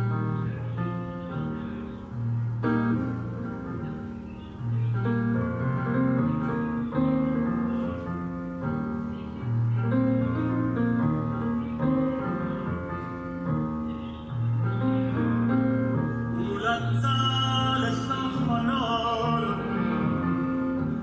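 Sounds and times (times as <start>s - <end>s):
piano playing slow chords: 0.0s - 21.0s.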